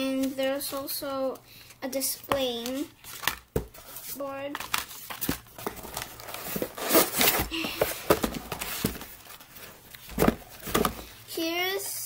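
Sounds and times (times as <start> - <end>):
cardboard packaging rustling: 2.0 - 11.3.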